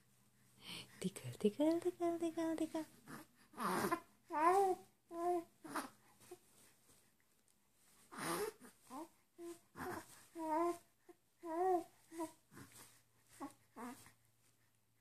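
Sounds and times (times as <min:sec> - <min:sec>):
infant cooing and babbling: 0:02.8 - 0:06.4, 0:08.1 - 0:14.1.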